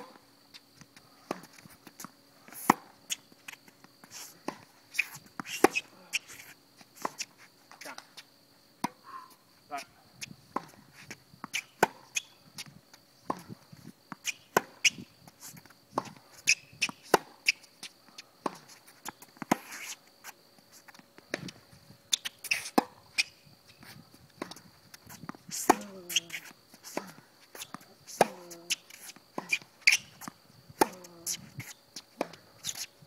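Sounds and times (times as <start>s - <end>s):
racket hitting tennis ball: 4.3s - 8.1s, 11.4s - 12.3s, 13.2s - 15.1s, 15.9s - 17.6s, 21.3s - 23.1s, 24.4s - 32.9s
faint steady high tone: 8.9s - 10.2s
tennis ball bouncing on hard court: 24.4s - 32.8s.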